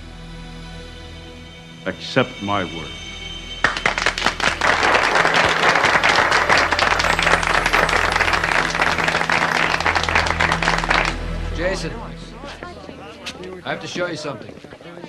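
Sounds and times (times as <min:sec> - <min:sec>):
crowd applauding: 0:03.6 - 0:11.9.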